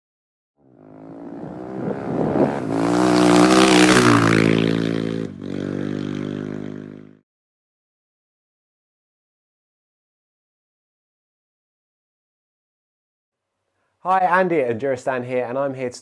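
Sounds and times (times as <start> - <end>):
motorcycle engine revving: 0.6 - 7.2.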